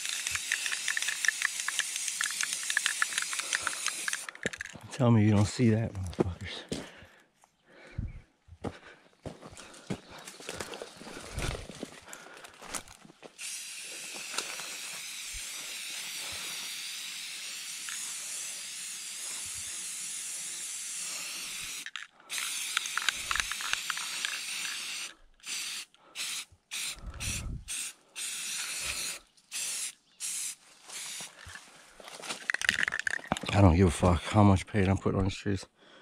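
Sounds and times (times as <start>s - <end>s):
spray paint can hissing: 0.0s - 4.7s, 13.4s - 31.6s.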